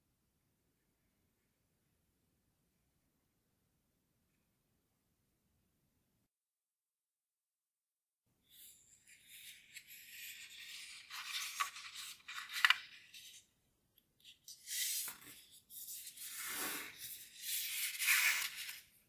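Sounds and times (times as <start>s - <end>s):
paper rubbing and rustling: 8.6s - 13.5s, 14.3s - 19.0s
sharp paper crinkle: 9.2s - 13.4s, 14.4s - 19.0s.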